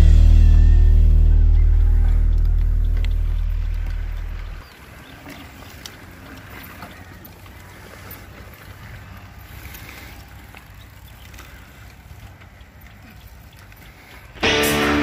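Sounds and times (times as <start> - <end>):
faint clicks: 2.3 - 8.3.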